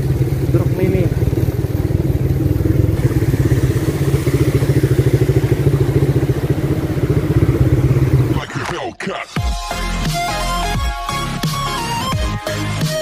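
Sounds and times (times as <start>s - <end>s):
motorcycle engine running: 0.0s - 8.5s.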